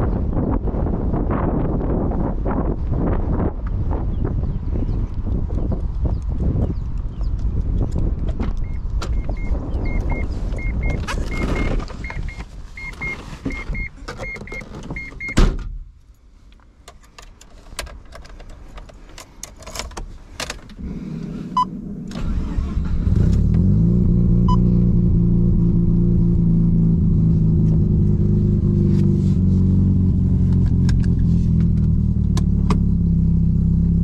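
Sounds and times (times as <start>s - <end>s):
electronic beeps: 8.6s - 15.4s
car door thump: 15.0s - 15.8s
rotary engine starting and idling: 20.7s - 24.6s.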